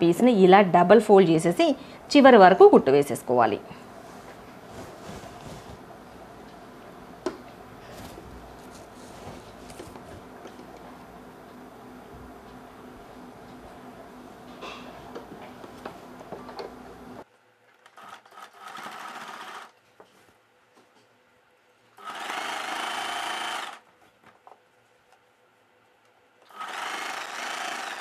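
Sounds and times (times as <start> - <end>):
steady hum: 0.0 - 17.6
sewing machine running: 17.8 - 19.7, 22.0 - 23.8, 26.5 - 28.0.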